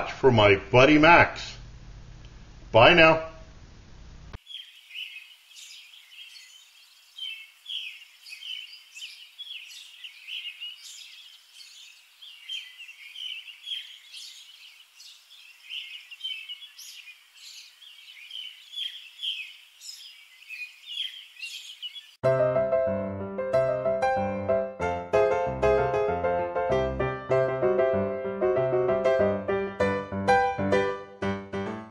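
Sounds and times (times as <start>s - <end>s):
birds chirping and singing: 4.4s - 22.2s.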